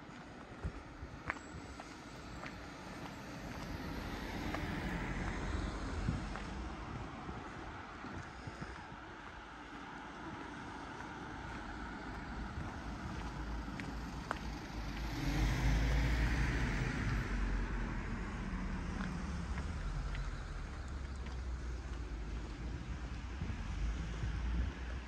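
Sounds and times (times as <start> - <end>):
car driving past: 2.4 - 7.3, 11.6 - 24.9.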